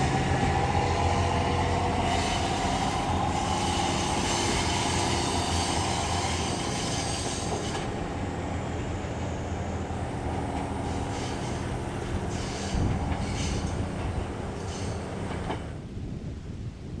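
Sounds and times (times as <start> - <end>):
diesel engine hum: 0.0 - 15.7
train wheels on track: 0.0 - 15.9.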